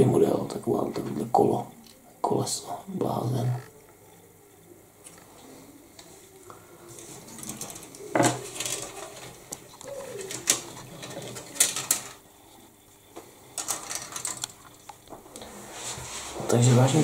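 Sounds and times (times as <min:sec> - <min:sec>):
plastic rustling: 0:06.9 - 0:12.3.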